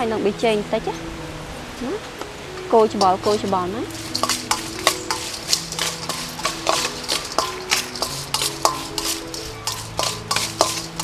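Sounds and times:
metal spoon against bowl: 0:03.0 - 0:11.0
prawn shells clattering in bowl: 0:03.0 - 0:11.0.

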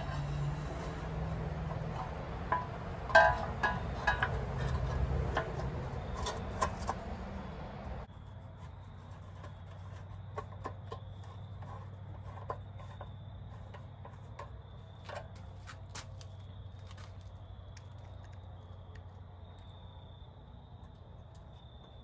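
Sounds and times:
steady low hum: 0:00.0 - 0:16.5.

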